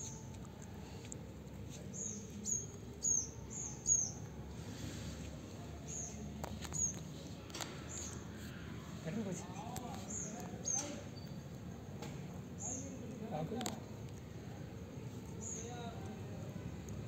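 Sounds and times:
small bird chirping: 0.0 - 0.4, 1.7 - 4.3, 5.8 - 11.6, 12.5 - 13.8, 15.2 - 15.9.

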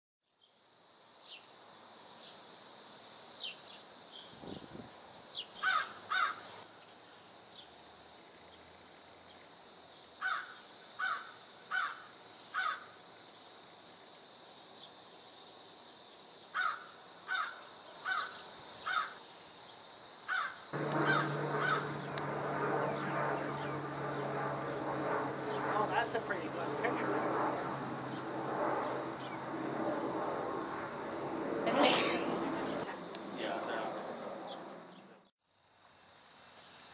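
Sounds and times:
bird cawing: 5.6 - 6.5, 10.2 - 12.9, 16.6 - 19.2, 20.3 - 24.0
high insect-like buzz: 16.6 - 35.0
propeller aircraft drone overhead: 20.7 - 35.3.

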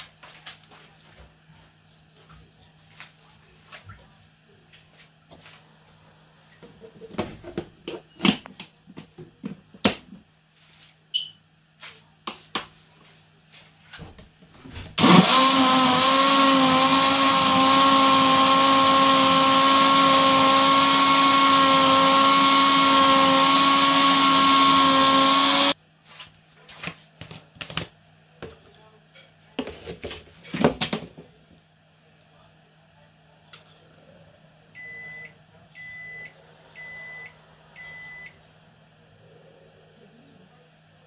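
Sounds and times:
blender motor running: 15.0 - 25.8.

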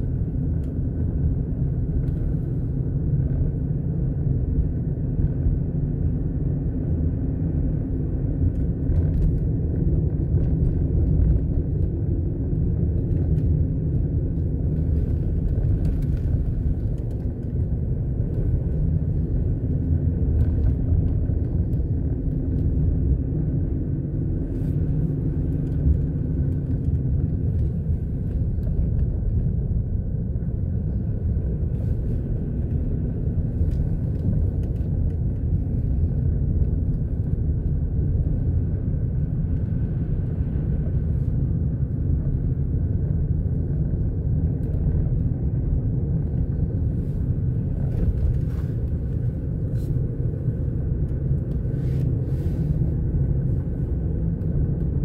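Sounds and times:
car interior rumble: 0.0 - 55.0.

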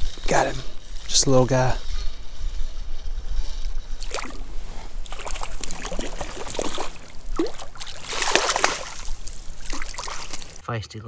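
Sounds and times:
fish splashing at water surface: 5.0 - 10.6.

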